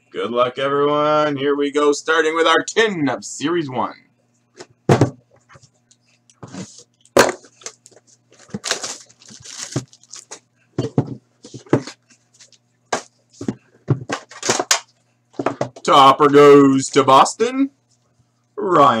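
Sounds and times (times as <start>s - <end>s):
crinkling plastic wrapping: 6.7s - 10.5s.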